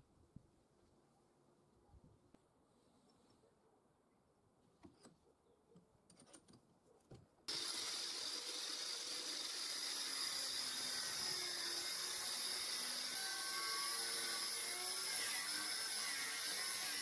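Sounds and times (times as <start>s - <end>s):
angle grinder cutting steel: 7.5s - 17.0s.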